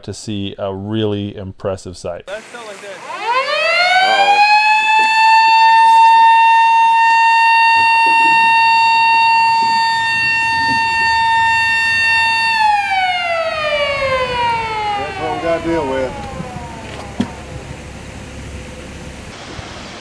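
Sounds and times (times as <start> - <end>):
warning siren wailing: 3.0 - 19.4.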